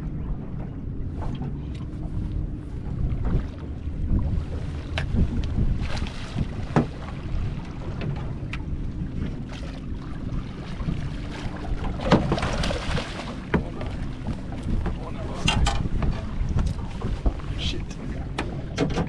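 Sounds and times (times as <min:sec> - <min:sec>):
water slapping boat hull: 0:00.0 - 0:19.0
wind buffeting microphone: 0:00.0 - 0:19.0
fish thrashing and splashing: 0:11.9 - 0:14.4.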